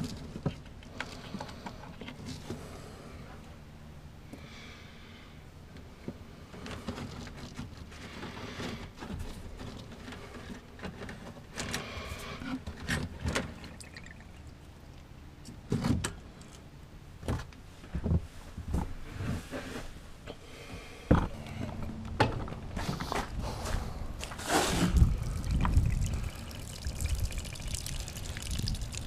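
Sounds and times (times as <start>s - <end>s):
hoses rustling: 21.1s - 29.0s.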